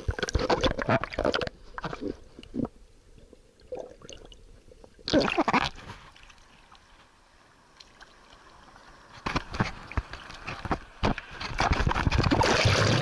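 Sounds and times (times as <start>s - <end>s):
muffled underwater gurgling: 0.0s - 2.8s
water splashing: 7.8s - 13.0s.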